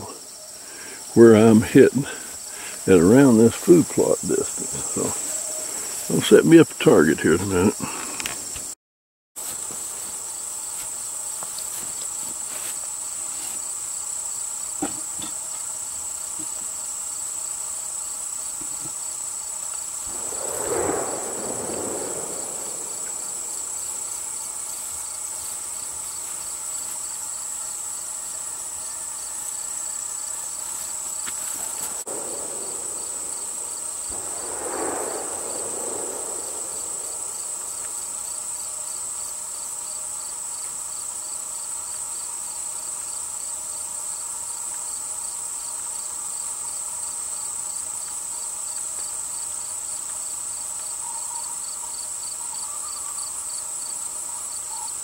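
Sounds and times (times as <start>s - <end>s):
crickets chirping: 0.0s - 8.8s, 9.4s - 55.0s
rushing noise: 20.0s - 25.0s, 31.6s - 38.6s.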